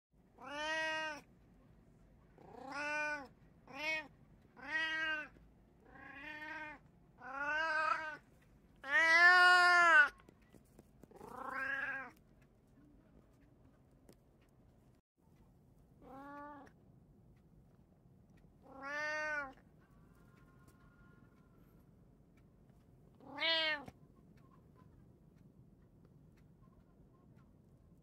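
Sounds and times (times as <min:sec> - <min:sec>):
cat meowing: 0:00.4 - 0:01.3, 0:02.4 - 0:08.2, 0:08.8 - 0:10.2, 0:11.2 - 0:12.2, 0:16.0 - 0:16.7, 0:18.6 - 0:19.6, 0:23.2 - 0:24.0.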